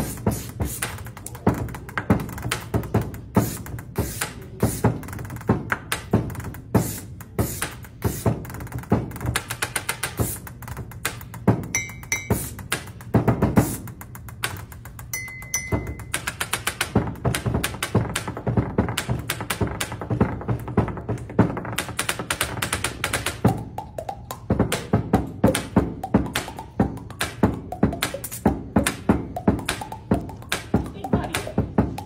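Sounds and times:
hand drumming on wooden desk: 15.2 - 32.0.

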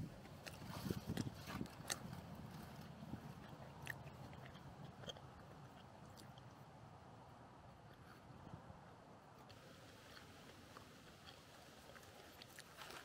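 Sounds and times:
person chewing sandwich: 0.2 - 6.7, 9.4 - 13.0.

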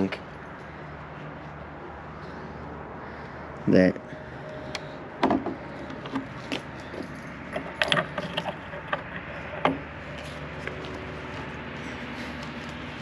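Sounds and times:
wooden door and latch rattling: 7.5 - 9.9.

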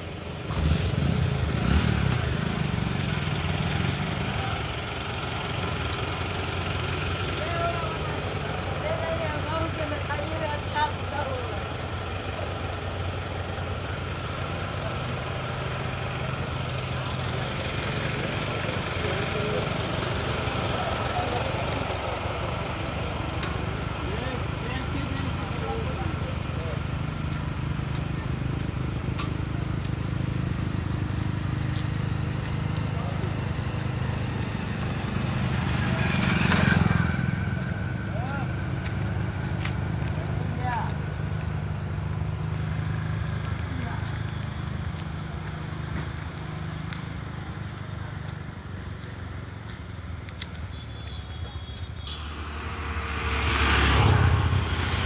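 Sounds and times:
engine low hum: 0.0 - 55.0
vehicle passing rush: 0.0 - 55.0
small petrol engine running: 29.5 - 50.2.

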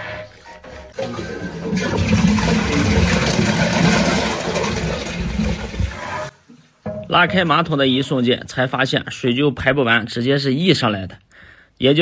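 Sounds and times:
toilet flush water gushing: 0.0 - 6.4.

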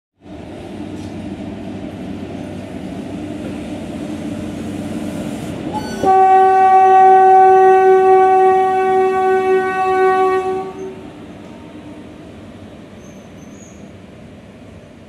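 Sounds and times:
freight train rumbling past: 0.2 - 15.0
locomotive horn blast: 5.8 - 11.1.

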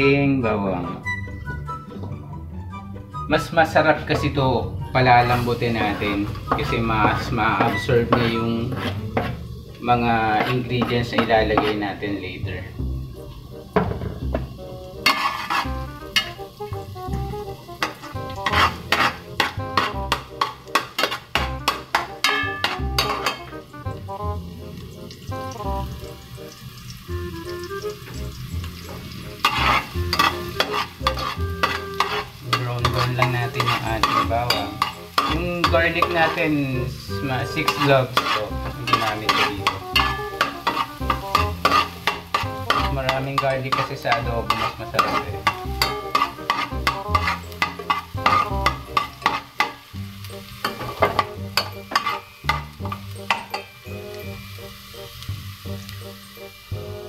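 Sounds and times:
background music: 0.0 - 57.0
garlic sizzling in oil: 5.0 - 57.0
ladle scraping metal pot: 5.3 - 9.6, 10.2 - 12.0, 15.0 - 16.4, 17.8 - 23.6, 29.4 - 49.7, 50.6 - 53.7.

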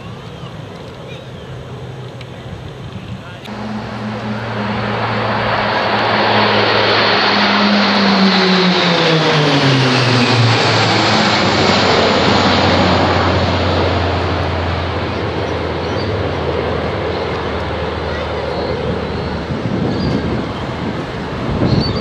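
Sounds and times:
propeller planes droning overhead: 0.0 - 22.0.

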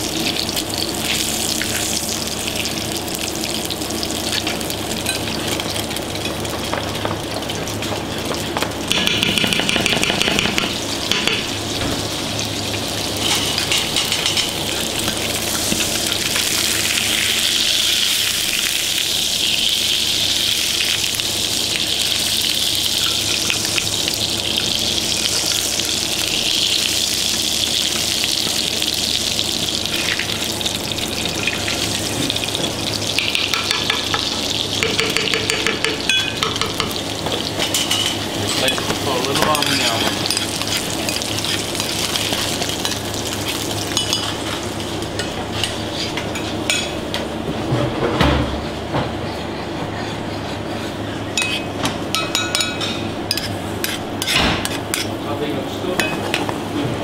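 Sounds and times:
butter sizzling in a pan: 0.0 - 46.6
spoon tapping and scraping pan: 33.2 - 37.0.

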